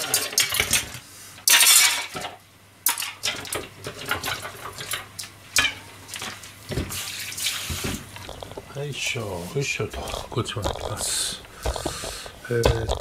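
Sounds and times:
dishes clattering in metal sink: 0.0s - 9.2s, 9.8s - 13.0s.

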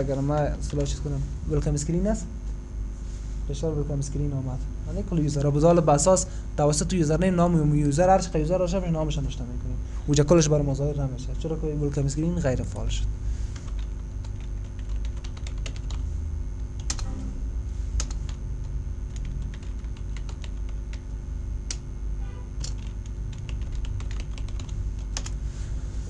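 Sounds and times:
low electrical hum: 0.0s - 26.0s
keyboard keys clicking: 13.7s - 16.0s, 16.8s - 17.2s, 18.0s - 18.3s, 19.1s - 21.0s, 22.6s - 25.4s.

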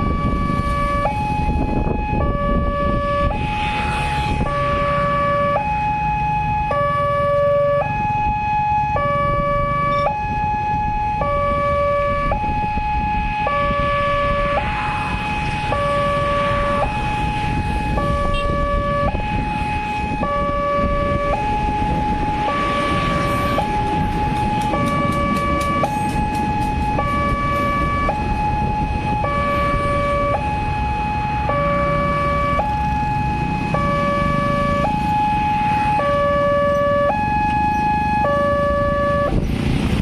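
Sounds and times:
two-tone crossing alarm: 0.0s - 39.4s
motorcycles rumbling: 10.9s - 40.0s.

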